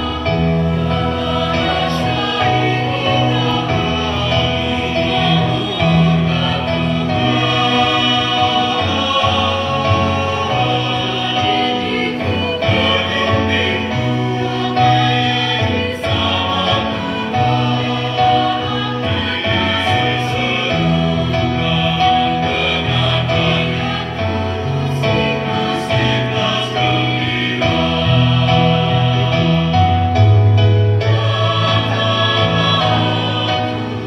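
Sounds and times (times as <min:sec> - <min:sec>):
mixed choir singing in harmony: 0:00.0 - 0:34.0.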